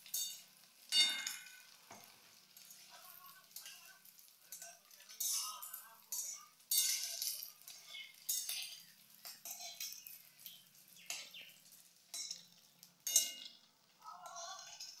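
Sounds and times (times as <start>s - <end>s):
egg sizzling in hot oil: 0.0s - 15.0s
spatula scraping a pan: 4.5s - 15.0s.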